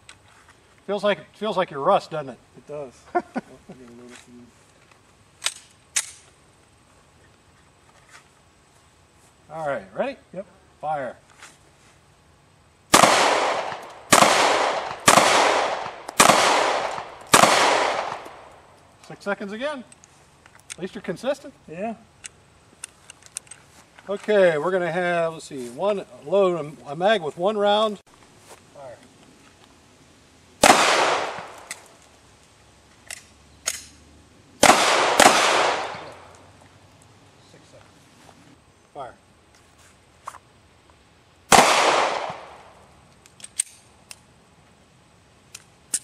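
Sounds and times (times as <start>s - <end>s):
magazine change clicks: 5.4s - 6.2s, 22.2s - 23.6s, 30.6s - 31.9s, 33.0s - 34.0s, 43.1s - 44.2s, 45.5s - 46.0s
handgun shots with echo: 13.0s - 18.4s, 30.6s - 31.8s, 34.6s - 36.3s, 41.5s - 42.5s.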